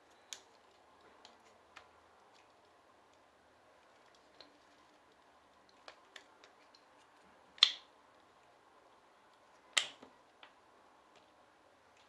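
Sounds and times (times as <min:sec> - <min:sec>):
sharp plastic snaps: 0:07.6 - 0:07.9, 0:09.7 - 0:10.6.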